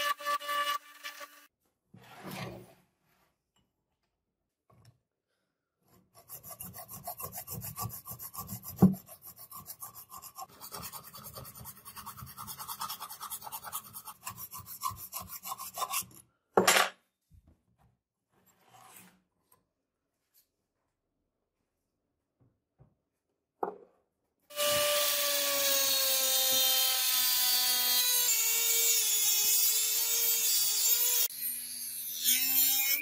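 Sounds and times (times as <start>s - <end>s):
hand file rasping on metal: 6.0s - 16.2s.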